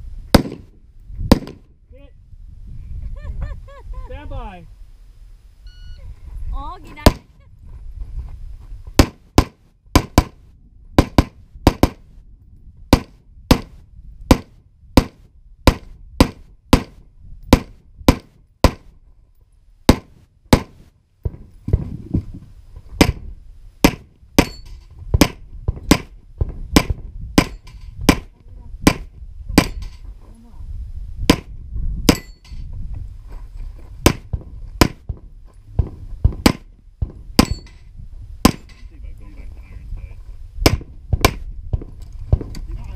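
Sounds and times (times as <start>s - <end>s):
rifle gunshots: 0.3s - 0.7s, 1.3s - 1.7s, 9.0s - 10.4s, 11.0s - 12.0s, 12.9s - 13.7s, 14.3s - 17.0s, 25.2s - 26.1s.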